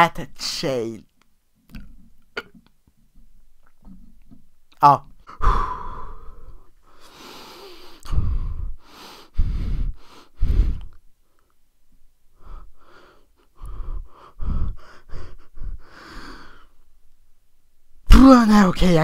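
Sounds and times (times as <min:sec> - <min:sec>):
person breathing with strain: 0:05.3 - 0:11.5, 0:12.3 - 0:16.8.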